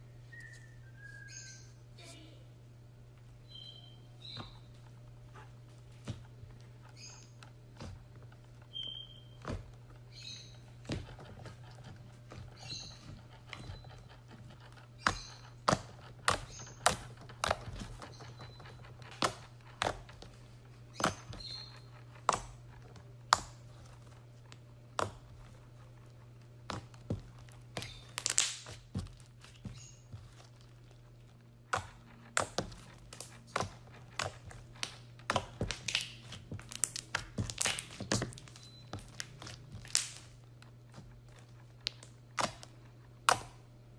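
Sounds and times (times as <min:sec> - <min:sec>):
slime squeaks: 0:06.7 - 0:23.7, 0:24.9 - 0:42.7
slime popping and clicking: 0:27.8 - 0:28.8, 0:34.7 - 0:40.3.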